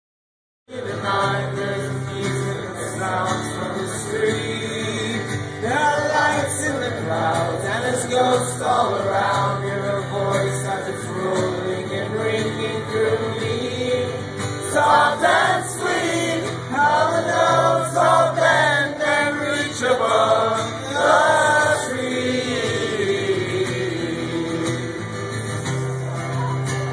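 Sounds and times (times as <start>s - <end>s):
man singing: 0.7s - 25.6s
acoustic guitar: 0.7s - 26.9s.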